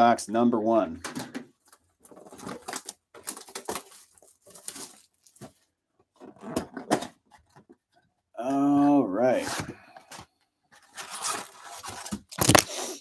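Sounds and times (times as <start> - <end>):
plastic wrap tearing and crinkling: 1.6 - 5.4, 10.9 - 13.0.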